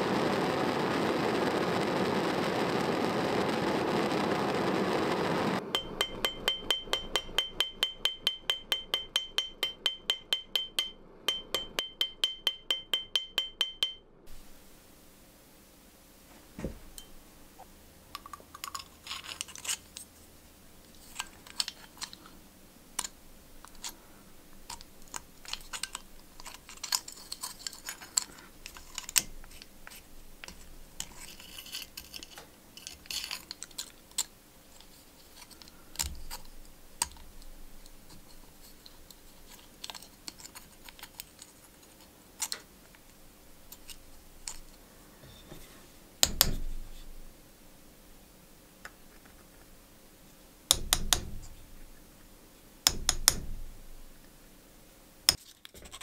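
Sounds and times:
small metal clicks and taps: 0:20.8 - 0:22.4, 0:23.0 - 0:44.8, 0:50.7 - 0:51.6, 0:52.8 - 0:53.6.

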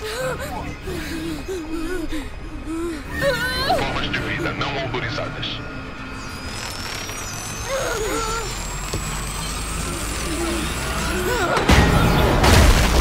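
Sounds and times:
loud crash: 0:11.7 - 0:13.0.

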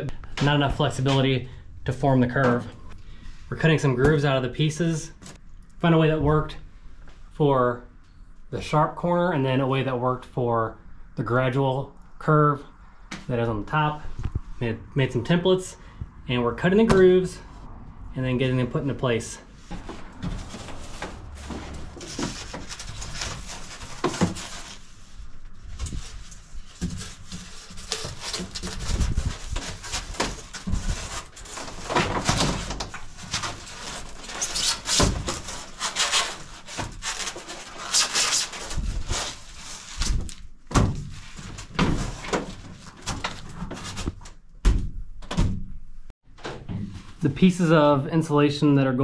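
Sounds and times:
foam boards rubbing and scraping: 0:19.6 - 0:40.4.

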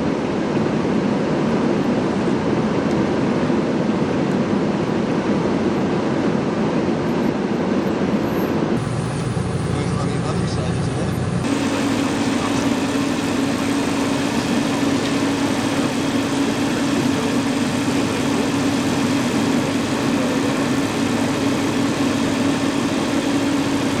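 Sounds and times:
diesel engine idling: 0:08.8 - 0:24.0.

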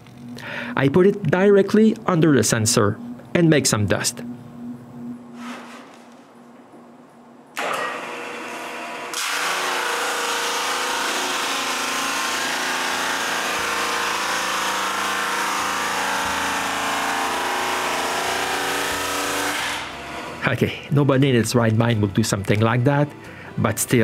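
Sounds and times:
drum sander running: 0:07.6 - 0:20.4.

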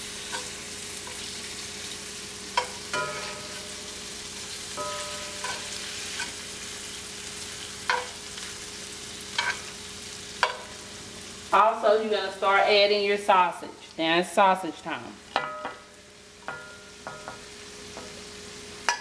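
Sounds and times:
shrimp sizzling in a skillet: 0:00.0 - 0:12.7, 0:15.2 - 0:19.0
metal utensil scraping a pan: 0:00.2 - 0:01.4, 0:02.5 - 0:04.0, 0:04.8 - 0:06.5, 0:07.8 - 0:08.5, 0:09.3 - 0:09.7.

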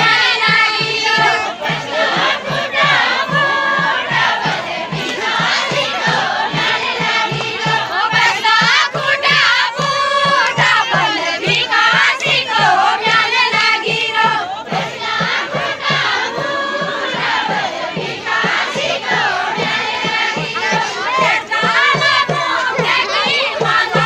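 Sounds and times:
group singing in chorus: 0:00.0 - 0:24.0
steady drum beat: 0:00.0 - 0:24.0.

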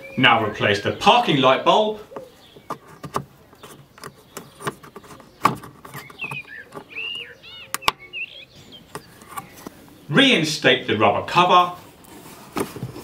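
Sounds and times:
bird chirping: 0:00.0 - 0:10.5
plastic bulb socket clicking: 0:07.7 - 0:08.0.

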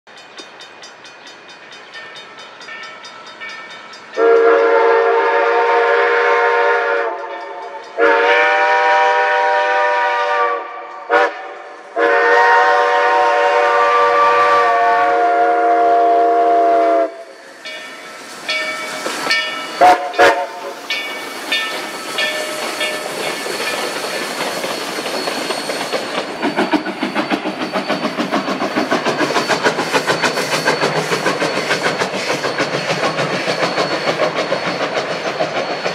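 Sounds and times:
locomotive rumbling past: 0:00.1 - 0:35.9
steam whistle blowing: 0:04.2 - 0:17.6, 0:19.6 - 0:26.8.

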